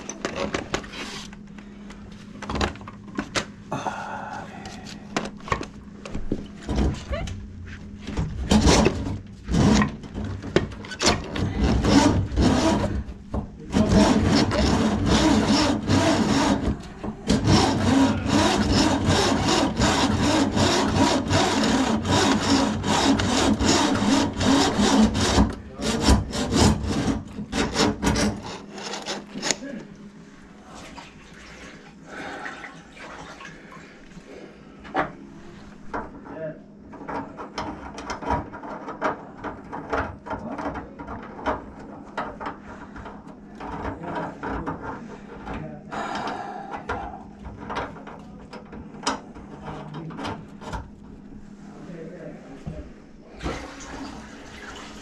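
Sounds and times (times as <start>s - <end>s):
drain-cleaning machine running: 11.2s - 29.5s
steel cable scraping and rattling: 13.7s - 29.7s.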